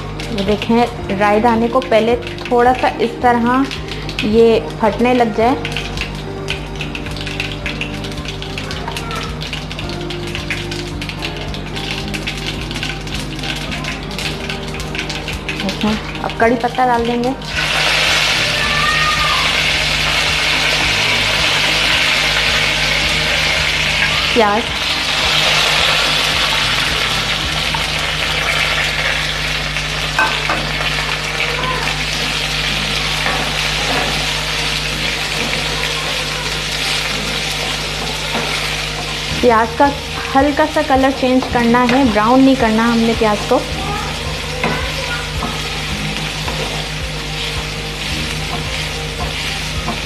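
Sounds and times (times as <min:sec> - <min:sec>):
onions sizzling in oil: 0:00.0 - 0:50.0
spatula stirring: 0:32.0 - 0:50.0.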